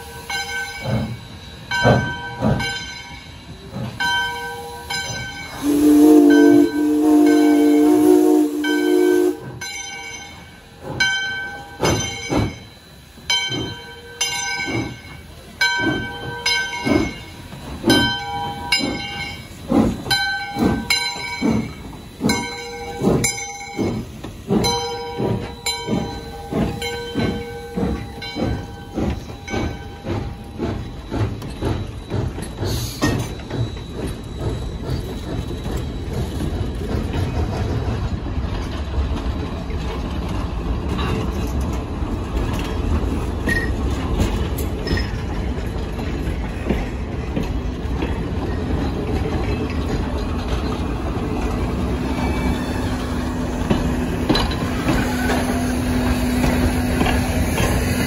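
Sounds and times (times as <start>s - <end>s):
locomotive bell ringing: 0.0s - 37.4s, 43.2s - 46.5s
steam hissing: 0.0s - 58.0s
steam locomotive whistle: 4.5s - 9.6s.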